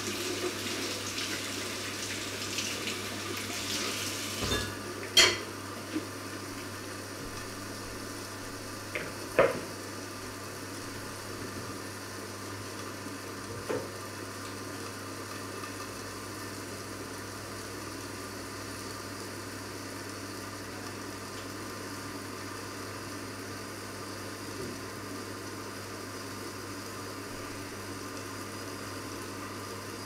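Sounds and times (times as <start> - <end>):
food sizzling in pots: 0.0 - 30.0.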